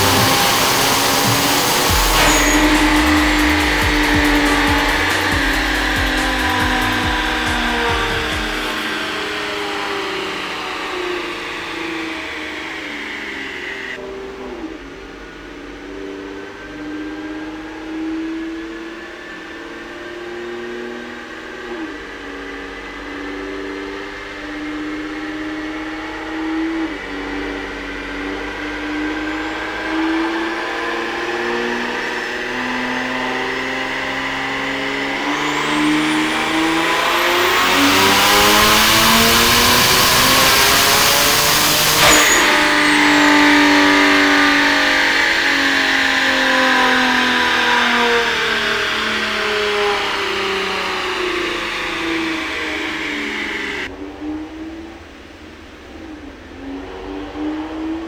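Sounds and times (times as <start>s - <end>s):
turbo rush: 0.0s - 14.0s, 32.2s - 46.9s
car engine revving on dyno: 0.0s - 58.0s.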